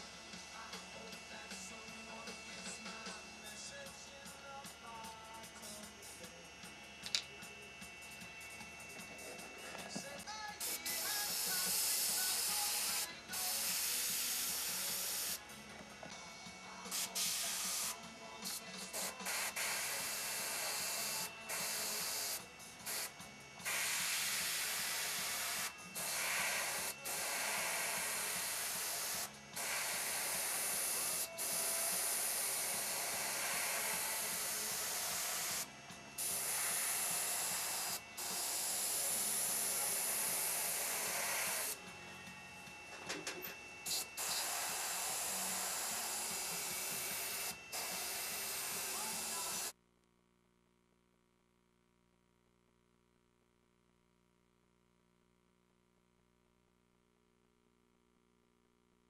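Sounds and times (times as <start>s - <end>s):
airbrush hissing: 10.6s - 15.4s, 16.8s - 41.8s, 43.8s - 49.7s.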